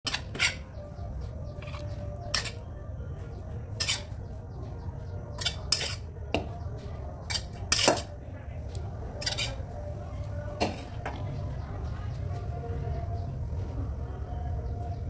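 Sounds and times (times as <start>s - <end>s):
metal spatula scraping ceramic plate: 0.1s - 0.7s, 1.6s - 2.6s, 3.8s - 4.2s, 5.3s - 6.1s, 7.2s - 8.1s, 9.2s - 9.7s.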